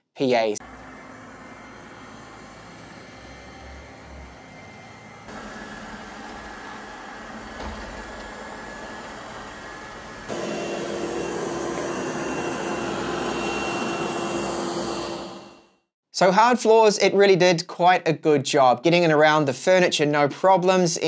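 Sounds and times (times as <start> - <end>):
faint high whine: 0.6 - 15.6
robot vacuum cleaner running: 0.6 - 15.6.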